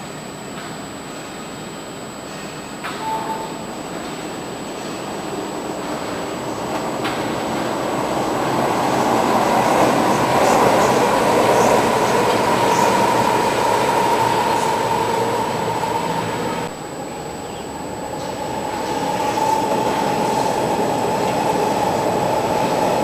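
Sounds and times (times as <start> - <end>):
steady train whine: 0.0 - 23.0
train wheels rumbling on rails: 0.0 - 23.0.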